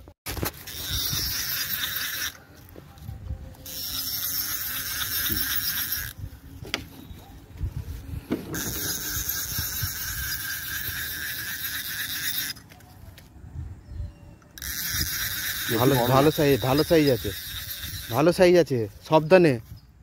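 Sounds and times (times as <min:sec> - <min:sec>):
fishing reel drag whirring: 0:00.6 - 0:02.4, 0:03.6 - 0:06.2, 0:08.5 - 0:12.8, 0:14.5 - 0:18.6
handling bumps and rustling: 0:06.6 - 0:08.8.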